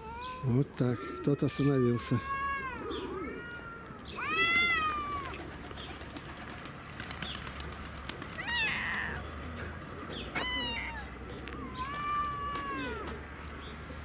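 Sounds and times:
cats meowing: 0:00.0 - 0:05.5, 0:08.4 - 0:09.4, 0:10.2 - 0:13.3.

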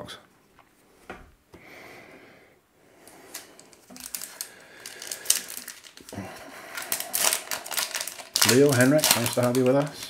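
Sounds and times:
card wrappers rustling: 0:03.0 - 0:10.0
light clicks and crinkles: 0:03.0 - 0:10.0.

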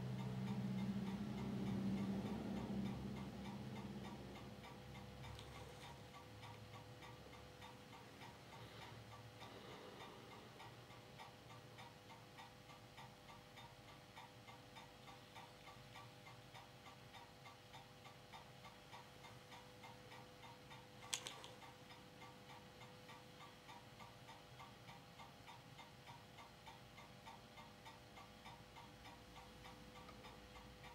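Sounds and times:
projector humming: 0:00.0 - 0:12.0
faint ticking: 0:00.0 - 0:30.9.

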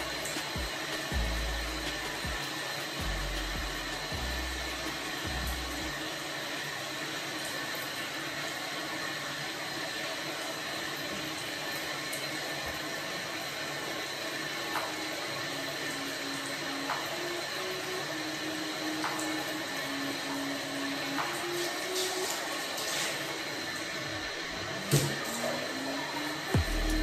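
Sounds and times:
soft low background music: 0:00.0 - 0:06.8, 0:24.9 - 0:27.0.

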